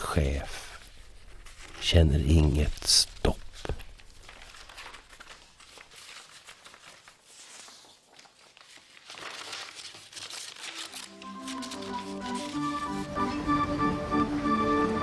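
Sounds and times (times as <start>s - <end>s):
paper sheets rustling: 0.0s - 13.2s
steady musical notes: 11.1s - 15.0s.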